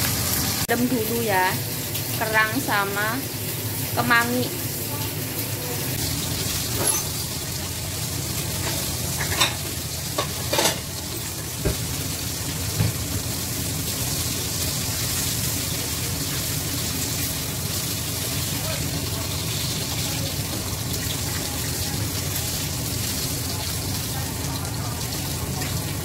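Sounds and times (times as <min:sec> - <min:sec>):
food sizzling in hot oil: 0:00.0 - 0:26.0.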